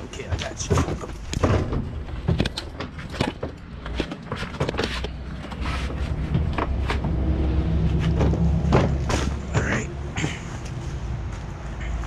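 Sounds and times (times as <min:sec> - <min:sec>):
dirt bike knocking and rattling: 0:00.0 - 0:05.6, 0:08.0 - 0:10.4.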